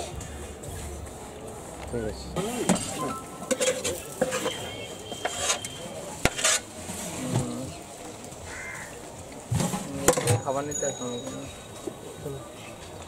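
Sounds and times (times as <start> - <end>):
metal spoon scraping a pot: 2.6 - 7.2.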